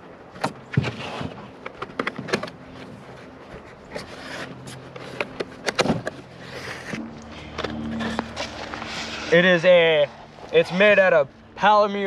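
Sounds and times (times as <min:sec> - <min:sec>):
cardboard scraping and rustling: 0:00.4 - 0:07.0.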